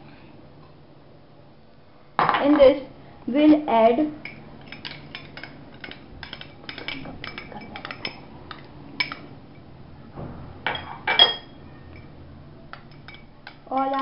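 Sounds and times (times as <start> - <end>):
metal spoon clinking on glass bowls: 4.2 - 9.6, 10.7 - 12.1, 12.7 - 14.0.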